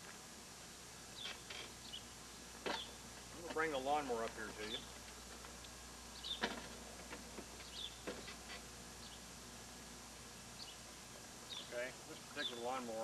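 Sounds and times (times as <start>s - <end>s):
small birds chirping: 1.1s - 3.0s, 6.1s - 6.6s, 7.4s - 8.4s, 9.0s - 9.4s, 10.5s - 13.0s
lawnmower knocks and clanks: 6.4s - 8.3s.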